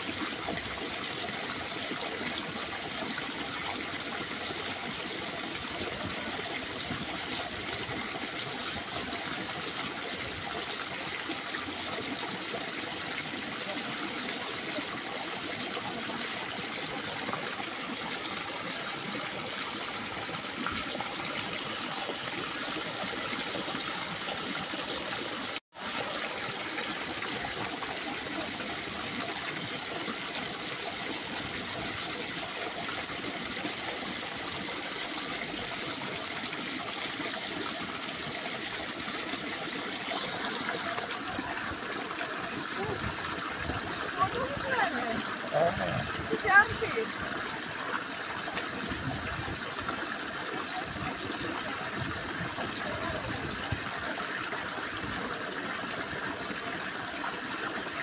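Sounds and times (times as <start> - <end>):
running water: 0.0 - 58.0.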